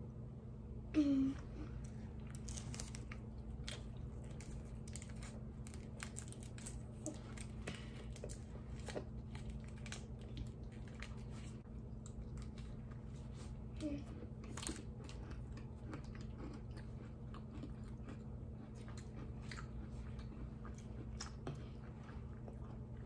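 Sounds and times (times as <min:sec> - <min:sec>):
chewing: 0:01.8 - 0:23.0
plastic wrapper crinkling: 0:02.3 - 0:07.6.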